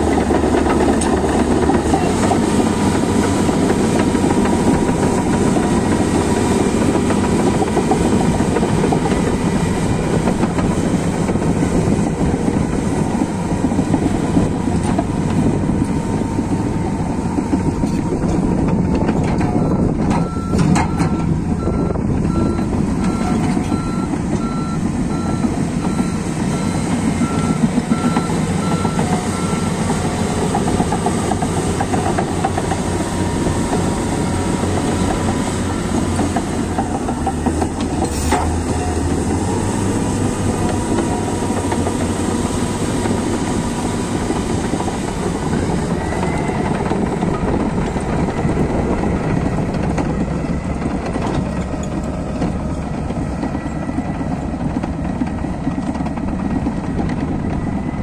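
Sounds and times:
bulldozer diesel engine working: 0.0 - 58.0
steel tracks clanking: 0.0 - 58.0
reversing alarm beeping: 19.5 - 30.5.

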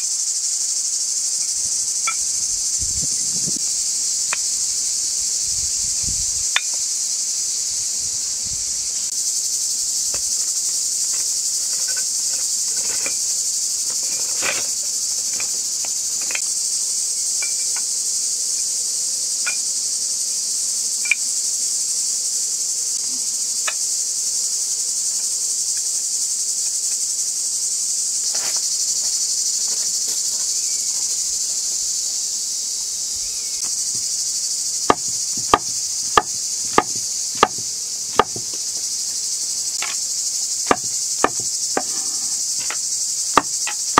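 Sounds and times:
insects chorus: 0.0 - 43.9
bricks set down on gravel: 10.1 - 16.4, 28.3 - 30.6, 34.9 - 38.6, 39.8 - 40.0, 40.7 - 42.8
cleaver chopping on board: 34.9 - 38.6, 40.7 - 42.8, 43.4 - 43.8.

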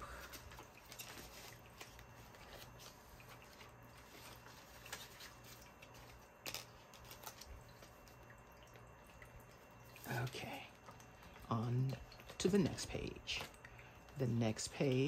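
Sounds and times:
paper money rustling: 0.1 - 8.0.

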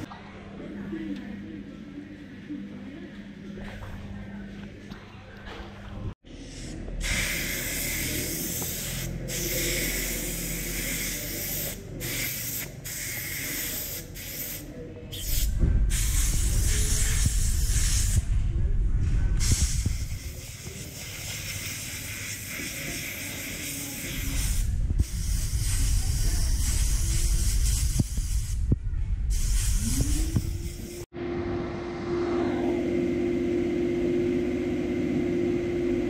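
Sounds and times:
compressed-air blow gun hissing: 19.4 - 28.6.

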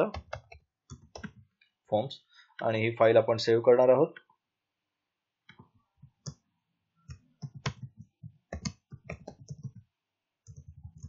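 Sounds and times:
computer keyboard typing: 0.1 - 1.4, 7.1 - 11.0.

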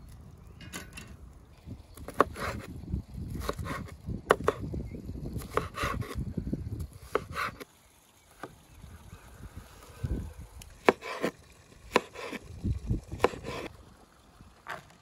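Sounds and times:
knife chopping on wooden board: 3.4 - 4.6, 5.4 - 6.2, 7.1 - 7.6, 10.8 - 11.3, 11.9 - 12.4, 13.2 - 13.7.

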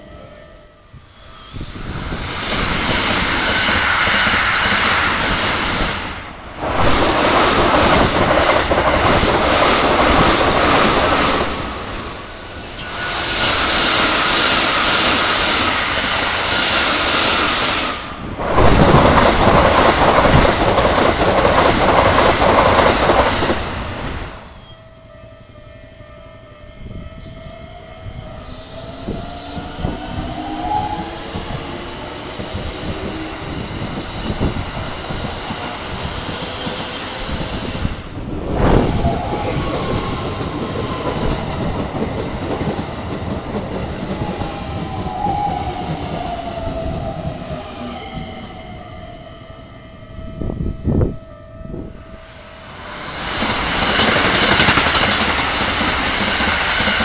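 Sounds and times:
train whine: 0.0 - 57.0
train wheels clattering on rails: 1.5 - 12.1, 12.7 - 24.5, 29.6 - 48.6, 52.8 - 57.0.

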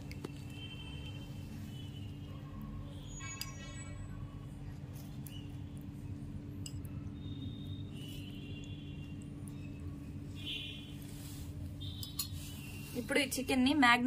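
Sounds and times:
steady low hum: 0.0 - 13.7
metal spoon clinking on bowl: 6.6 - 6.9, 12.0 - 12.4.

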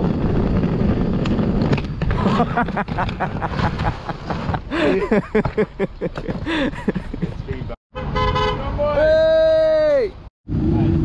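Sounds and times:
luggage wheels rumbling over paving: 0.0 - 6.7.

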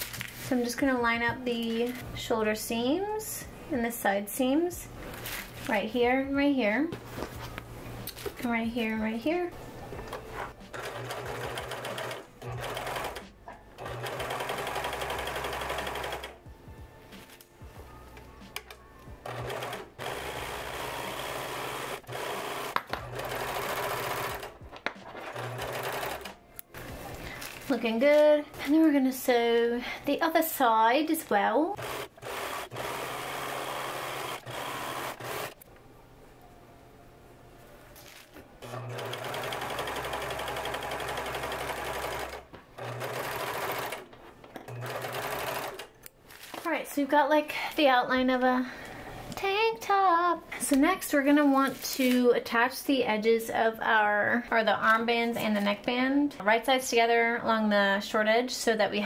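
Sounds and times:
overlock sewing machine stitching: 10.7 - 13.2, 13.8 - 16.4, 19.2 - 24.5, 25.2 - 26.3, 31.8 - 35.6, 38.6 - 44.1, 44.7 - 45.9.

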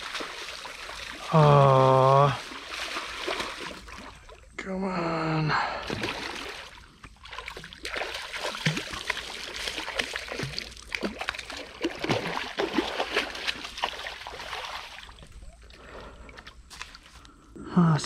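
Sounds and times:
turtle splashing in water: 0.0 - 4.4, 5.8 - 15.5.

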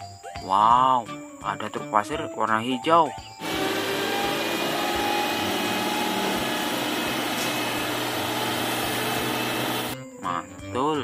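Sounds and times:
diesel truck engine running: 3.4 - 10.0.

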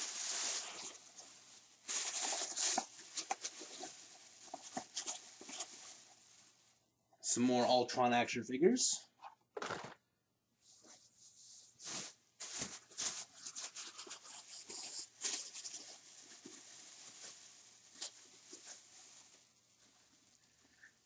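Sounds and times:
plastic bag crinkling: 0.0 - 6.6, 11.8 - 20.8.

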